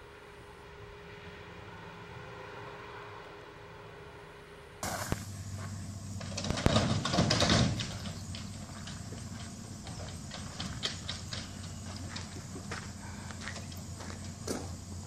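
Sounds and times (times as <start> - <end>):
rough noise: 0.2 - 12.3
footsteps crunching on gravel: 8.0 - 14.8.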